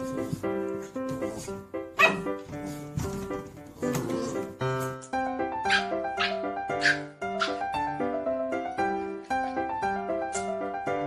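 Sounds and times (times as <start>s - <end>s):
light background music: 0.0s - 11.0s.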